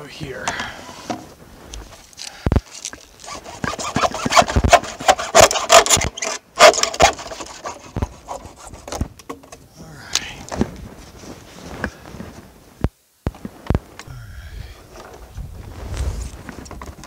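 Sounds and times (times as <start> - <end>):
hand saw cutting plastic: 2.7 - 9.0.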